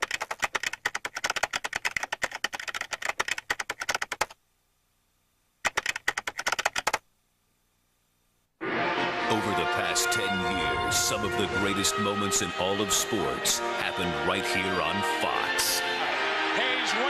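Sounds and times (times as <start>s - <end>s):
keyboard typing: 0.0s - 4.4s, 5.6s - 7.0s.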